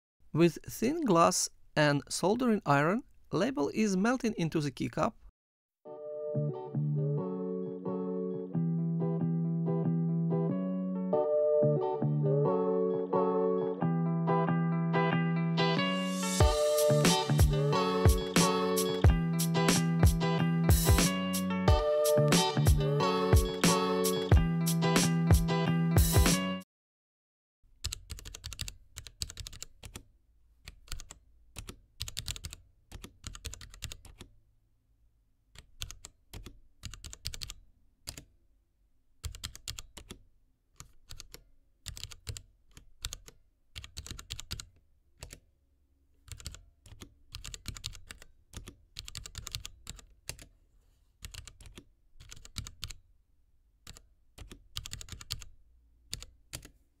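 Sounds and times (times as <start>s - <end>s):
typing on mechanical keyboard: 27.8s - 30.0s, 30.7s - 34.3s, 35.6s - 38.3s, 39.2s - 40.2s, 40.8s - 45.4s, 46.2s - 50.5s, 51.2s - 53.0s, 53.8s - 55.5s, 56.1s - 56.7s.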